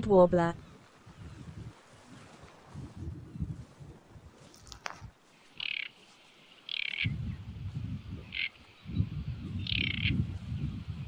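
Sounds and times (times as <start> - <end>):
wind buffeting microphone: 0.0 - 11.0
bird singing short notes: 5.6 - 5.9, 6.7 - 7.2.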